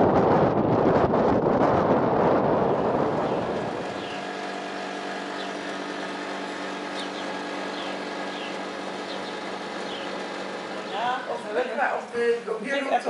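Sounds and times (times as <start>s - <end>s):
wind buffeting microphone: 0.0s - 6.6s
low mechanical hum: 0.0s - 12.6s
bird chirps: 3.3s - 4.6s, 5.2s - 5.7s, 6.9s - 11.1s.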